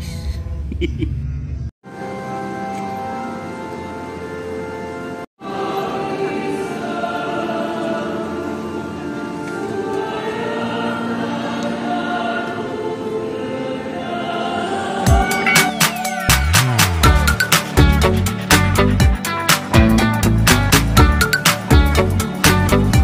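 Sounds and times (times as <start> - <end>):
choir singing a hymn: 5.4 - 15.8.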